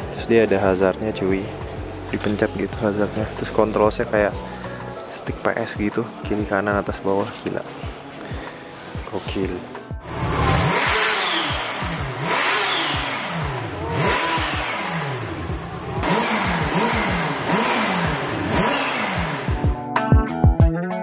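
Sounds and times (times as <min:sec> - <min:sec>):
background music: 0:00.0 - 0:21.0
motorcycle engine revving: 0:10.0 - 0:19.8.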